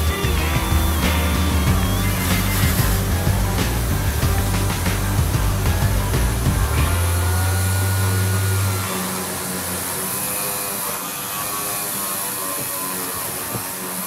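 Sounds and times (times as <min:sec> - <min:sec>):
low hum: 0:00.0 - 0:10.2
orbital sander on steel: 0:00.0 - 0:14.0.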